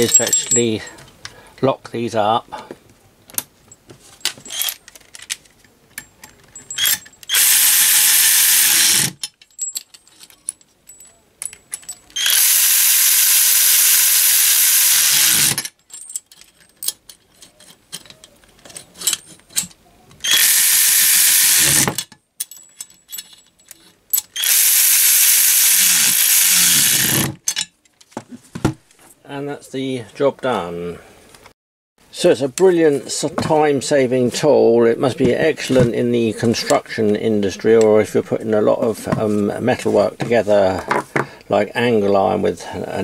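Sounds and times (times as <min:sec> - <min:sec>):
small metal clicks and knocks: 0:00.0 - 0:01.4, 0:03.3 - 0:07.3, 0:09.1 - 0:12.2, 0:15.6 - 0:19.8, 0:21.9 - 0:24.4
electric ratchet wrench running: 0:06.8 - 0:09.2, 0:12.2 - 0:15.7, 0:20.2 - 0:22.0, 0:24.4 - 0:27.4.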